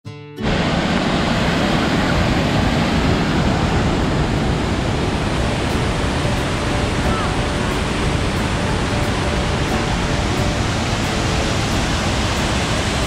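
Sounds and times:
waterfall rushing: 0.4 - 13.0.

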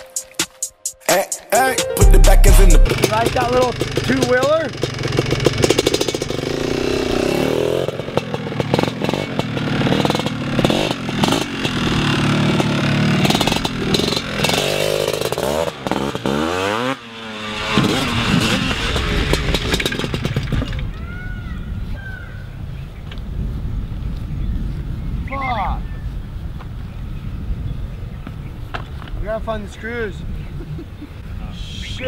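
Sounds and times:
atv engine revving: 2.8 - 20.9.

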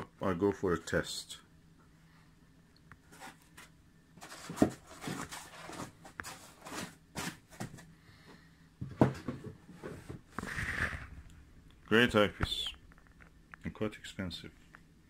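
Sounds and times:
foam and cardboard rustling: 3.0 - 7.9.

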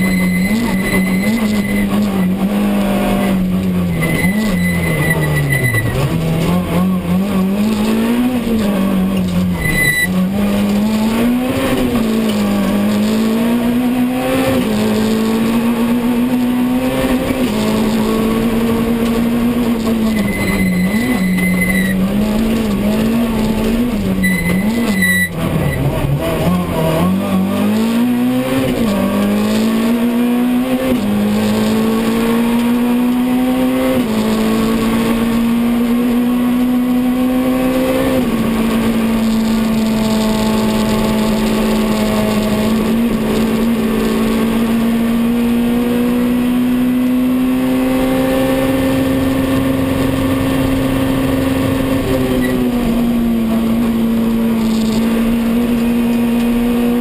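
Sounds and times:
high tyre squeals: 0.0 - 6.3, 9.5 - 10.3, 19.7 - 26.0, 52.2 - 52.8
rally car engine revving hard: 0.0 - 57.0.

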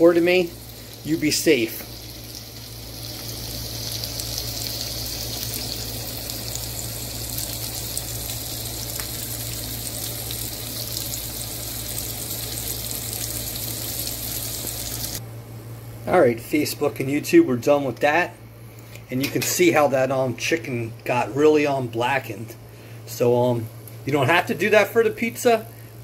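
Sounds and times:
chicken sizzling in a frying pan: 0.0 - 15.2
low steady hum: 0.0 - 26.0.

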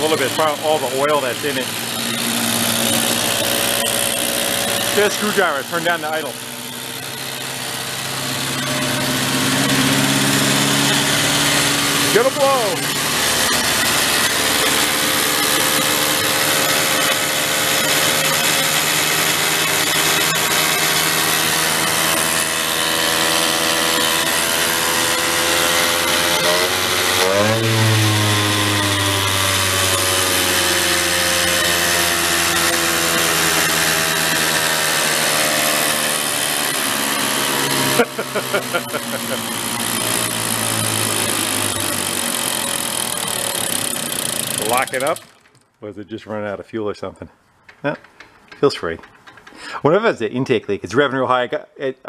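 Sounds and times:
mini bike engine revving high: 0.0 - 45.4
deeper hum: 25.9 - 30.8.

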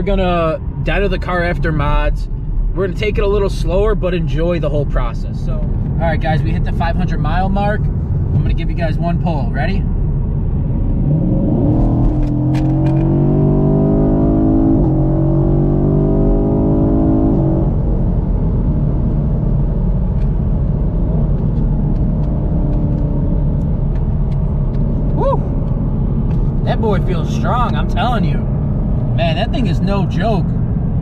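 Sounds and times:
car engine at full throttle: 0.0 - 31.0
road drone: 0.0 - 31.0.

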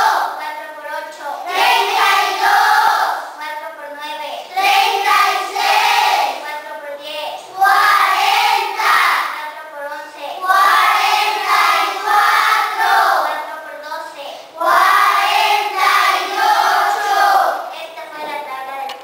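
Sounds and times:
children chanting in unison: 0.0 - 0.4, 1.4 - 3.4, 4.5 - 6.4, 7.5 - 9.4, 10.4 - 13.3, 14.5 - 17.7.

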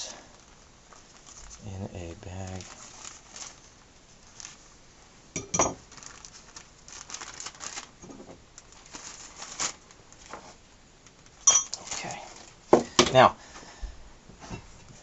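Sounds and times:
plastic bag crinkling: 0.1 - 4.8, 5.7 - 12.6.

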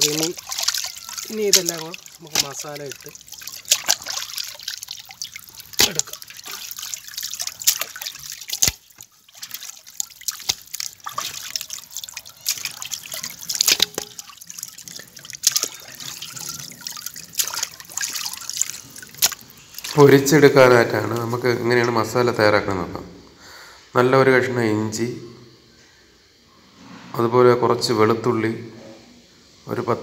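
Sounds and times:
fish rubbed and rinsed by hand: 0.0 - 21.9
water splashing and dripping: 0.0 - 22.2.

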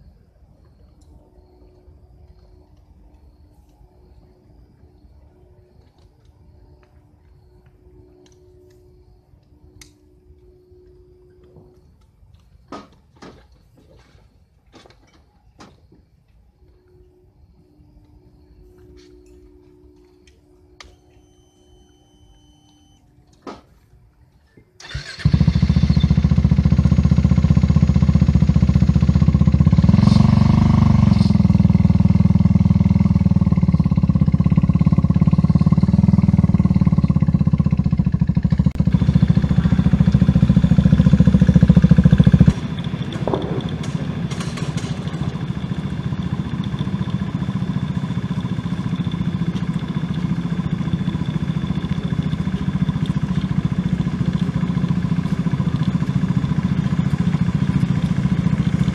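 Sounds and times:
race car engine revving: 25.0 - 58.9.

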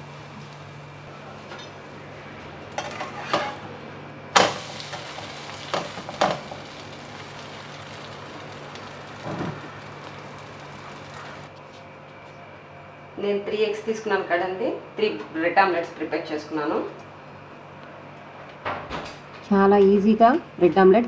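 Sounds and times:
metal spatula scraping a pan: 2.8 - 3.6
food sizzling in a frying pan: 4.4 - 11.5.

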